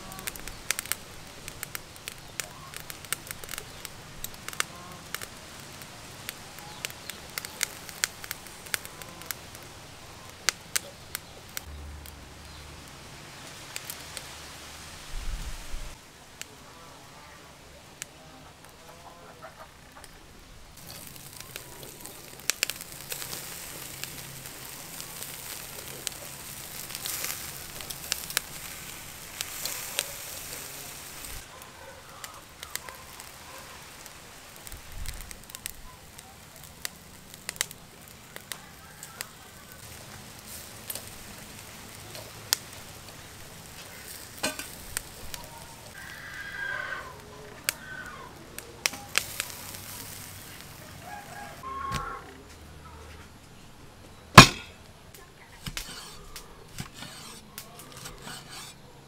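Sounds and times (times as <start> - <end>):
steaks sizzling on grill: 0.0 - 11.7, 20.8 - 51.6
sharp pops and crackles: 0.0 - 14.3, 20.8 - 46.2, 47.2 - 52.7, 54.3 - 58.8.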